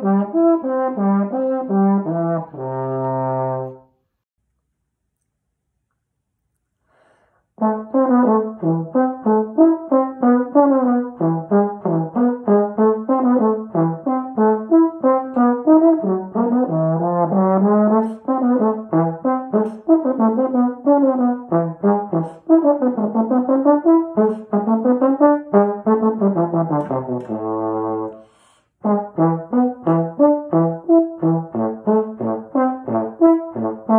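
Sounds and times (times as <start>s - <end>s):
trombone playing short notes: 13.1s - 28.2s.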